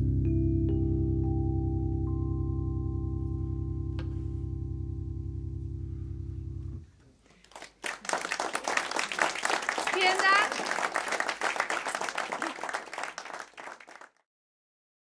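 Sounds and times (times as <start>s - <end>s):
sustained low drone: 0.0s - 6.8s
audience applause: 7.4s - 14.2s.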